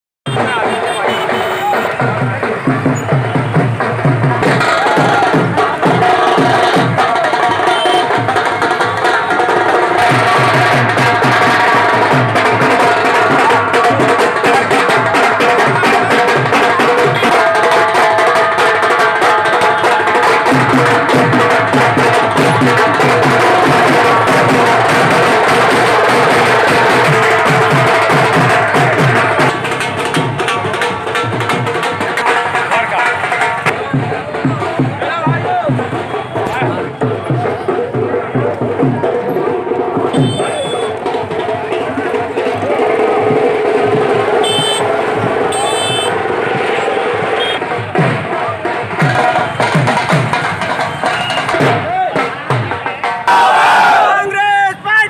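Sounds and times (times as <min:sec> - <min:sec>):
drum-led band music: 0:00.2 - 0:55.0.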